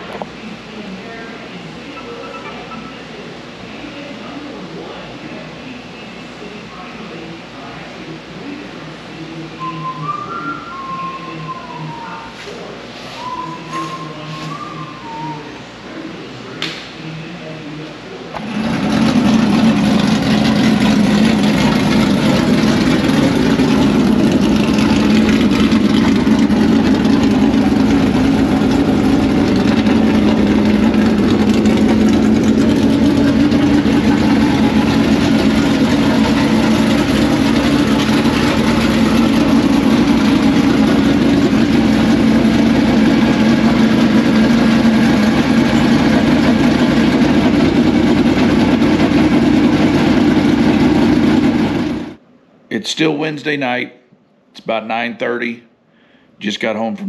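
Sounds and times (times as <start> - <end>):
engine running: 16.7 - 52.2.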